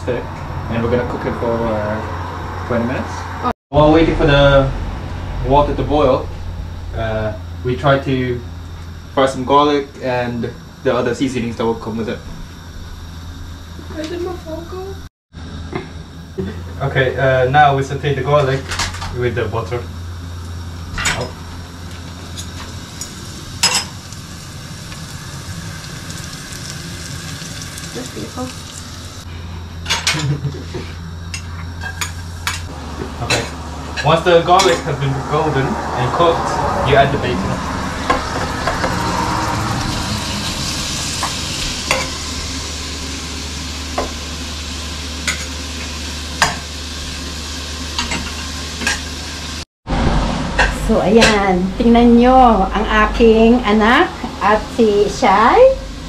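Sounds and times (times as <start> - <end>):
low hum: 0.0 - 48.7, 49.5 - 56.0
garlic sizzling in butter: 20.2 - 29.3, 38.0 - 49.6.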